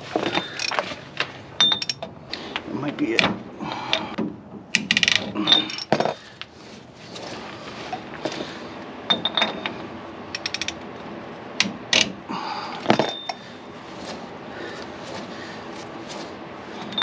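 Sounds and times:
ringing metal clinks: 1.6 - 2.0, 13.0 - 13.4
ratchet clicks: 10.3 - 10.8.

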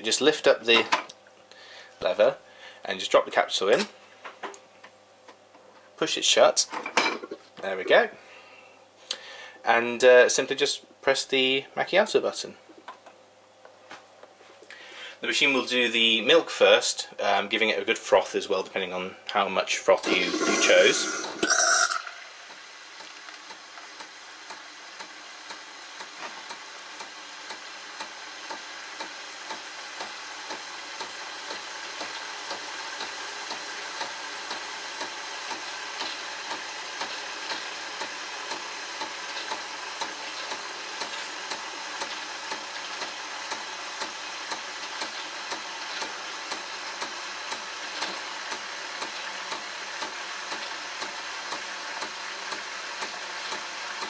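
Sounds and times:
coffee machine frothing milk: 20.0 - 23.9.

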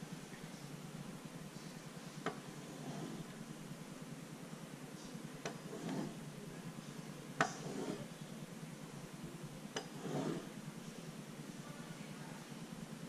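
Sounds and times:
drawing tool scratching paper: 2.5 - 3.4, 5.5 - 6.2, 7.4 - 8.1, 9.8 - 10.5.

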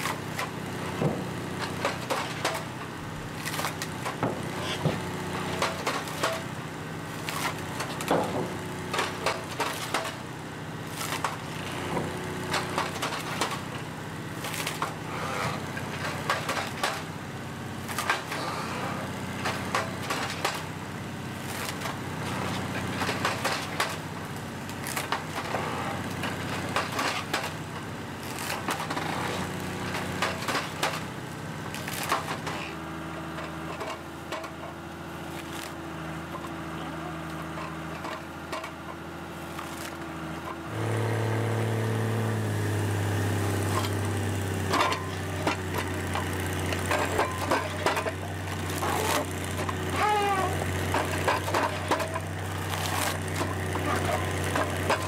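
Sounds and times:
machine engine running: 0.0 - 55.0
wood cracking and splintering: 3.3 - 6.5, 7.1 - 10.2, 10.8 - 17.1, 17.8 - 18.5, 21.3 - 32.8, 35.3 - 35.8, 37.6 - 40.5, 43.2 - 55.0.

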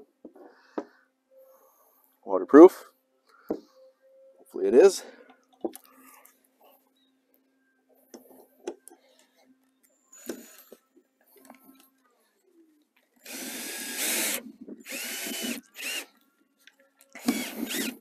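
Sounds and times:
power drill driving screws: 10.2 - 10.8, 13.2 - 16.1, 17.1 - 18.0.

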